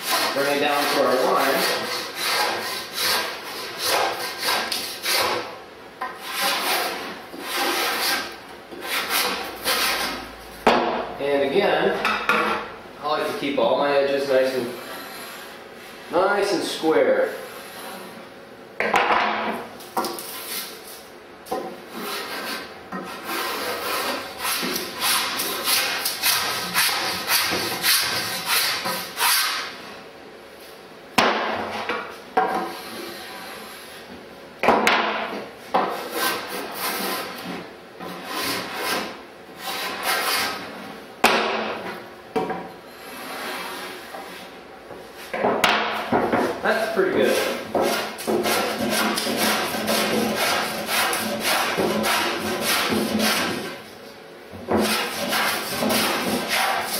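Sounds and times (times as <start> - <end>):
block plane rasping on wood: 0.0 - 5.5, 6.2 - 10.2, 14.7 - 15.5, 21.9 - 29.7, 35.9 - 40.7, 47.3 - 53.8, 54.7 - 56.9.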